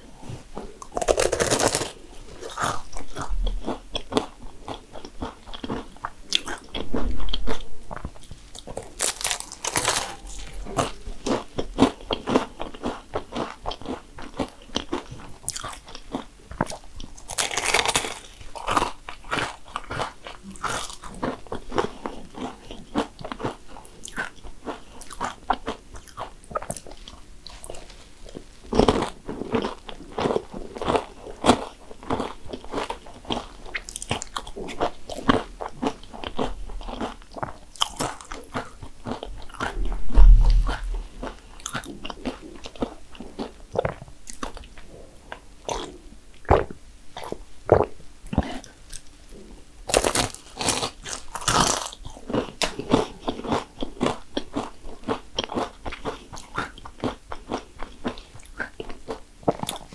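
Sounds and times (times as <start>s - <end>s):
crunchy pastry chewing: 0.0s - 59.9s
dull low thump: 39.6s - 41.4s.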